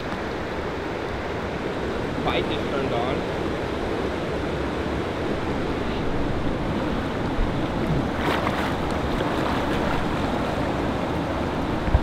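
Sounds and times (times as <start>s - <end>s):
river water rushing: 0.0s - 12.0s
water splashing: 7.7s - 11.2s.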